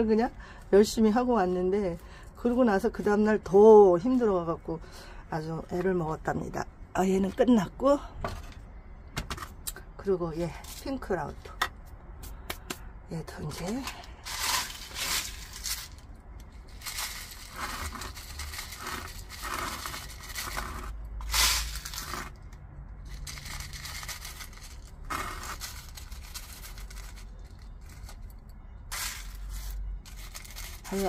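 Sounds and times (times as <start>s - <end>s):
potting mix and pebbles poured by hand: 13.4s - 22.4s, 23.0s - 31.0s.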